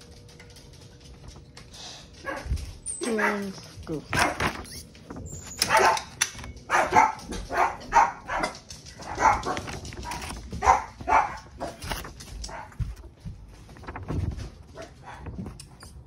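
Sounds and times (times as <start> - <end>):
small dog barking: 2.2 - 4.5, 5.6 - 11.9.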